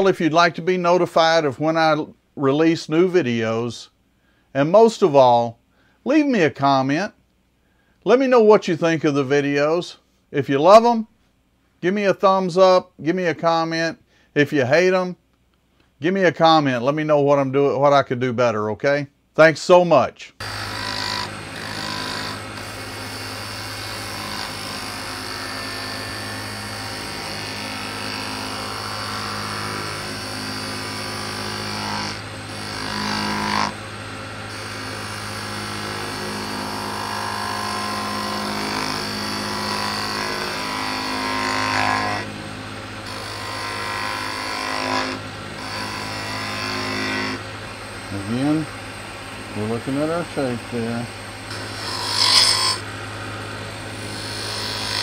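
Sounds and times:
turning tool cutting wood: 0:20.4 - 0:42.4, 0:43.0 - 0:50.8, 0:51.4 - 0:55.0
lathe motor hum: 0:20.4 - 0:55.0.

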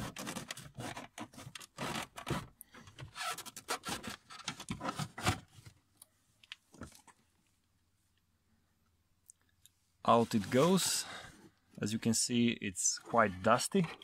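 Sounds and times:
plastic scraping and rubbing: 0:00.0 - 0:05.8.

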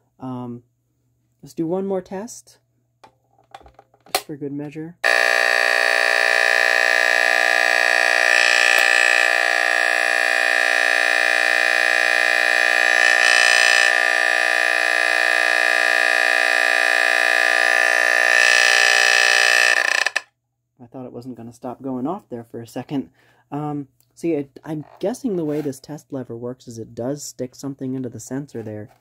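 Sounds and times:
smoke alarm buzzy blare: 0:05.0 - 0:20.2.

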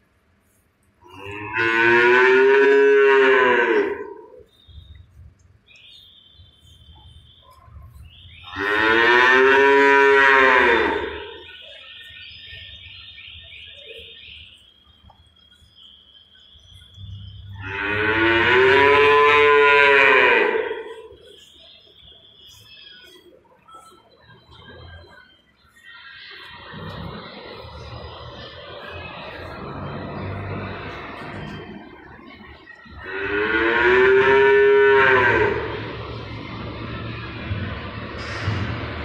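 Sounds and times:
calves mooing: 0:01.0 - 0:04.4, 0:08.4 - 0:11.5, 0:17.5 - 0:21.0, 0:33.0 - 0:36.0.

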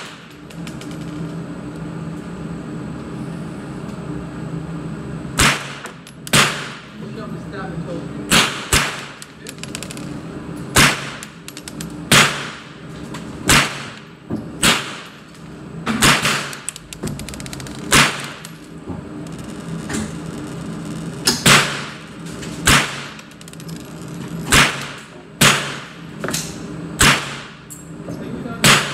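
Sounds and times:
steady low hum: 0:00.0 - 0:28.9
rifle shots: 0:05.4 - 0:06.9, 0:08.3 - 0:09.2, 0:10.7 - 0:11.4, 0:12.1 - 0:12.7, 0:13.5 - 0:14.0, 0:14.6 - 0:15.2, 0:16.0 - 0:16.7, 0:17.9 - 0:18.4, 0:21.4 - 0:22.0, 0:22.6 - 0:23.2, 0:24.5 - 0:26.0, 0:27.0 - 0:27.6.

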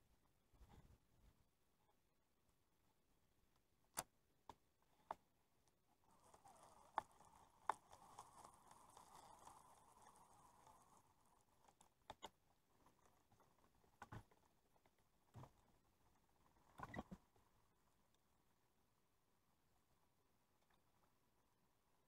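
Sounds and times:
faint knocks and clicks: 0:04.0 - 0:17.4.

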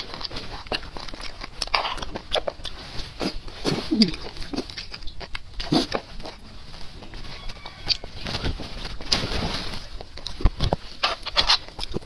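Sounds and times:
lip smacks: 0:00.0 - 0:06.4
sucking and slurping marrow: 0:00.0 - 0:08.2, 0:09.0 - 0:12.0
small mouth clicks: 0:00.7 - 0:06.1.

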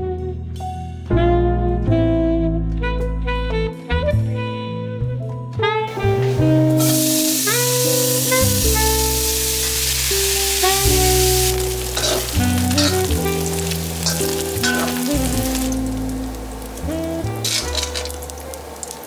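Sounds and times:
background music sustained notes: 0:00.0 - 0:19.0
bacon sizzling in pan: 0:05.9 - 0:19.0
spatula and tongs scraping pan: 0:12.0 - 0:15.8, 0:17.4 - 0:18.2.

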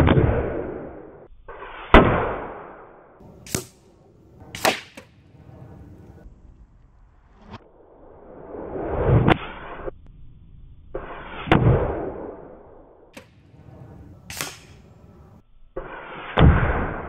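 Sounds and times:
air rifle shots: 0:01.9 - 0:05.2, 0:14.2 - 0:14.9
pellets hitting targets: 0:03.2 - 0:03.9, 0:04.5 - 0:05.2, 0:14.3 - 0:14.9.

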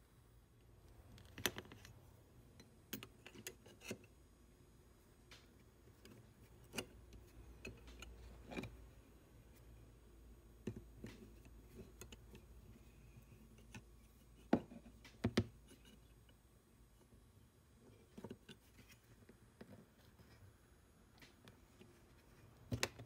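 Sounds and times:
small metal clicks and taps: 0:05.3 - 0:08.8, 0:10.6 - 0:12.5.

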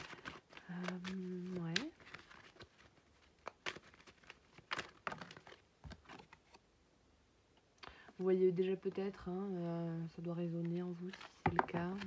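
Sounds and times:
cards tapping and rustling: 0:00.0 - 0:06.6, 0:10.6 - 0:12.0.

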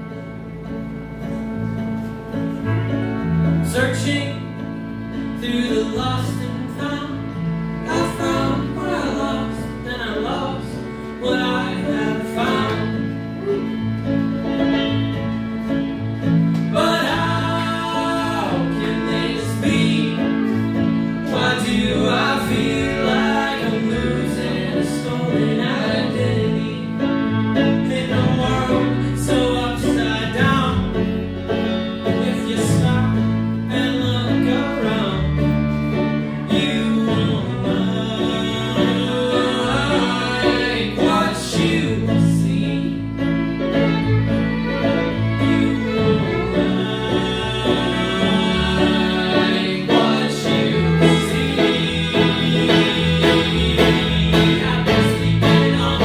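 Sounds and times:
bluegrass band playing: 0:00.0 - 0:56.0
person singing: 0:16.7 - 0:35.6, 0:36.4 - 0:43.8, 0:44.7 - 0:56.0.

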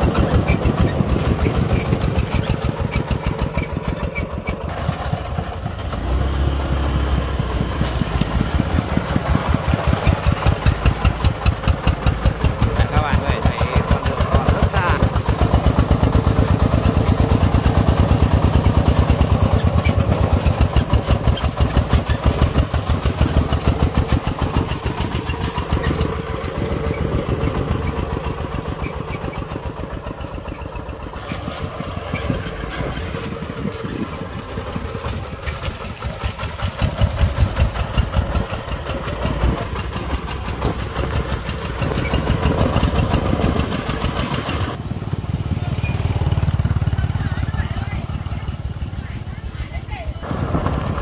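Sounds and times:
diesel truck engine chugging: 0:00.0 - 0:51.0
motorbike engine running: 0:00.0 - 0:51.0.

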